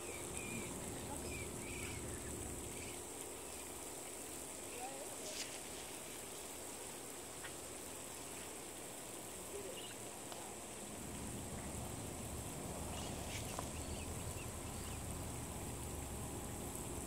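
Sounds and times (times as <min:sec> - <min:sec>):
faint bird chirps: 0:00.0 - 0:03.1, 0:09.6 - 0:10.1, 0:12.9 - 0:15.1
high insect buzz: 0:00.0 - 0:17.0.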